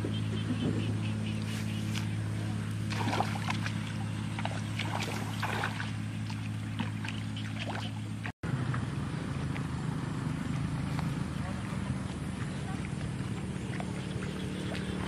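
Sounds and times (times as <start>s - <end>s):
low motor hum: 0.0s - 15.0s
footsteps splashing through water and mud: 1.3s - 8.3s, 10.3s - 15.0s.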